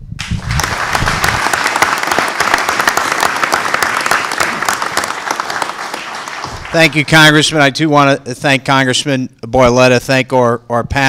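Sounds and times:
audience applauding: 0:00.2 - 0:07.8.

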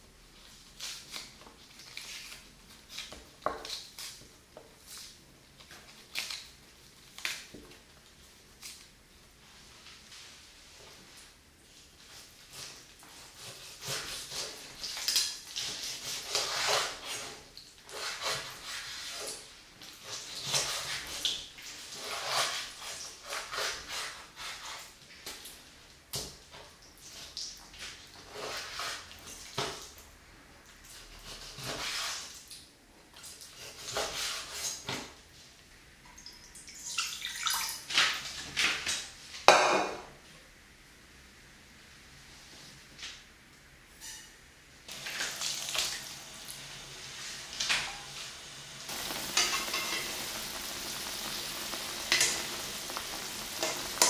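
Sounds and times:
liquid poured into pan: 0:48.9 - 0:54.0.

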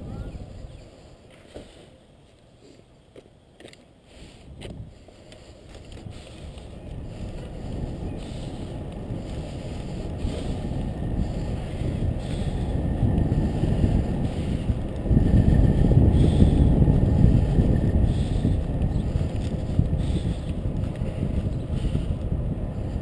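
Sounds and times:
wind rushing over microphone: 0:00.0 - 0:01.3, 0:04.1 - 0:23.0.

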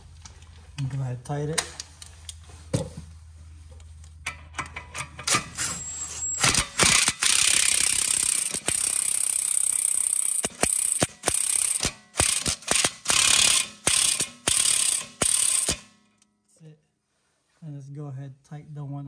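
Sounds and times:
power tool running: 0:05.4 - 0:15.9.

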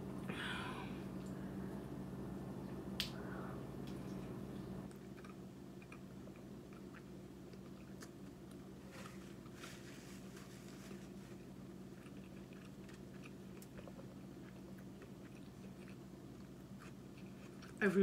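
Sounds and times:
steady low hum: 0:00.0 - 0:18.0
person chewing: 0:04.9 - 0:17.8.

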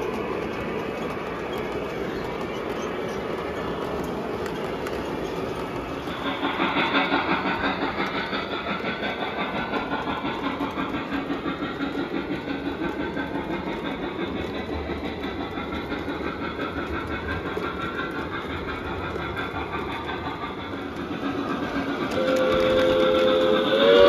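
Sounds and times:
model train rolling rumble: 0:00.0 - 0:24.0
wheels clicking over rail joints: 0:00.0 - 0:24.0.

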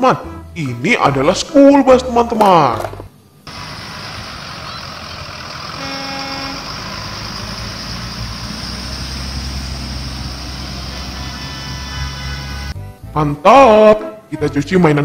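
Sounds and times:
bus engines rumbling: 0:03.5 - 0:12.8
tyres hissing on wet road: 0:03.5 - 0:12.8
bus horn toot: 0:04.6 - 0:07.2, 0:10.7 - 0:12.8.

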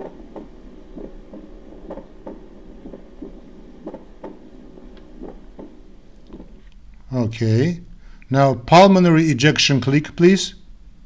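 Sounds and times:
heartbeat: 0:00.0 - 0:06.7.

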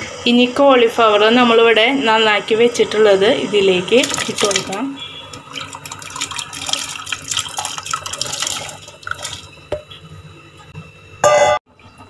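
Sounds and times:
vegetables splashing into water: 0:04.0 - 0:04.8.

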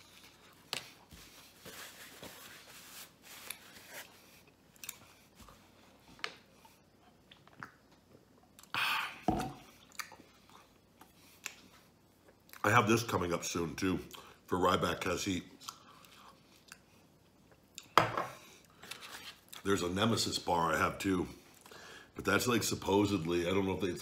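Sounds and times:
man chewing food: 0:00.0 - 0:01.6, 0:03.4 - 0:08.8, 0:09.4 - 0:12.6, 0:15.6 - 0:19.6.

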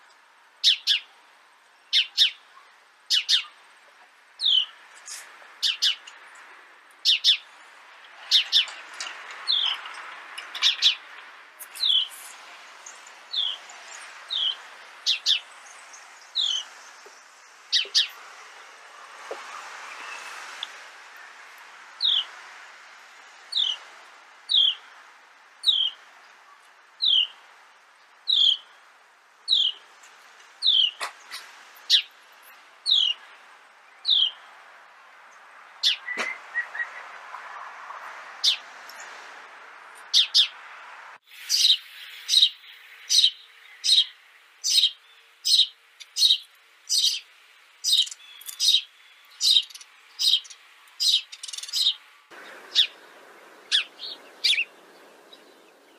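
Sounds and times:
sparrows chirping: 0:00.6 - 0:01.2, 0:01.8 - 0:03.6, 0:04.4 - 0:22.4, 0:23.1 - 0:23.8, 0:24.5 - 0:27.4, 0:28.1 - 0:28.9, 0:29.5 - 0:29.9, 0:30.6 - 0:34.5, 0:35.3 - 0:37.3, 0:38.4 - 0:39.2, 0:40.0 - 0:40.6, 0:41.3 - 0:55.9
steady hiss: 0:52.0 - 0:55.9.

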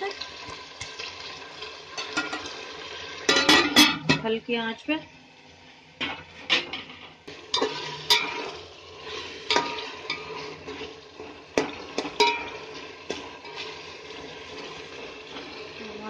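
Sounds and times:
food frying in oil: 0:00.0 - 0:16.0
spoon clinking and scraping a pot: 0:01.9 - 0:02.6, 0:03.3 - 0:04.2, 0:07.5 - 0:15.8.

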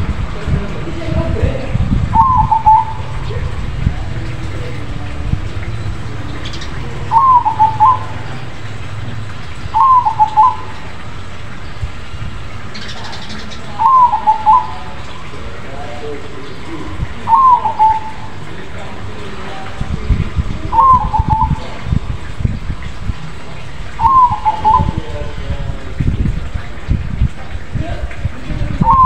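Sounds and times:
dove cooing: 0:02.1 - 0:08.8, 0:09.7 - 0:11.0, 0:12.8 - 0:19.1, 0:19.9 - 0:22.3, 0:23.9 - 0:25.4, 0:28.8 - 0:29.0.

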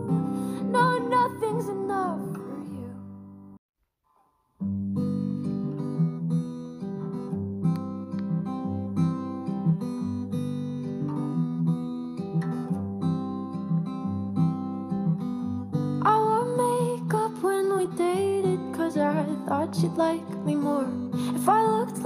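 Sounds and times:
fingerpicked acoustic guitar: 0:00.0 - 0:03.6, 0:04.6 - 0:22.0
acoustic guitar chord: 0:04.6 - 0:22.0.

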